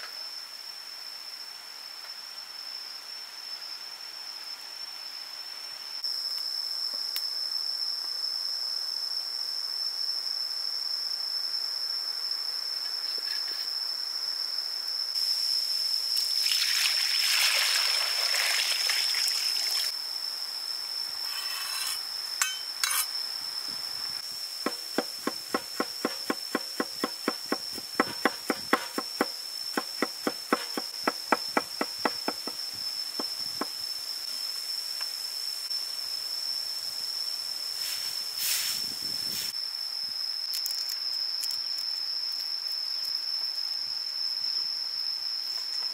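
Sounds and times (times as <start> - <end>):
high-pitched insect drone: 0.0 - 45.9
cleaver chopping on wooden board: 24.7 - 32.6
rushing hiss: 37.7 - 39.6.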